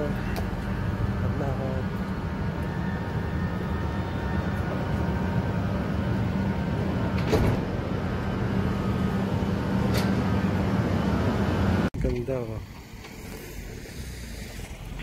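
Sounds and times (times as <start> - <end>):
electric train humming: 0.0 - 11.9.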